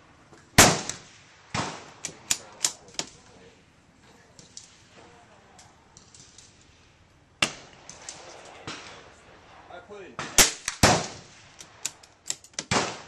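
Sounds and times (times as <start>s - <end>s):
gunshot with echo: 10.2s - 11.5s, 12.7s - 13.0s.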